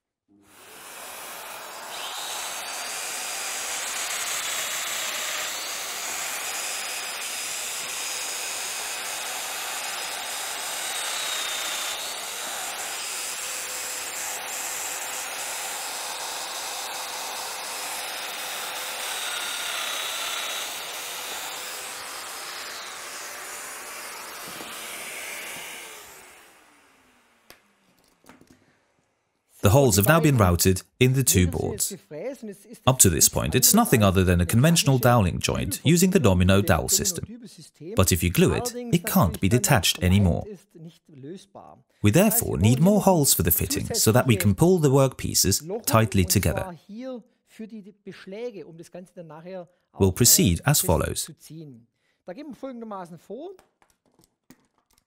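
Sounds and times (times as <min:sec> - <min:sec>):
dust extractor running: 0:00.5 - 0:26.6
jointer motor whine: 0:00.5 - 0:27.6.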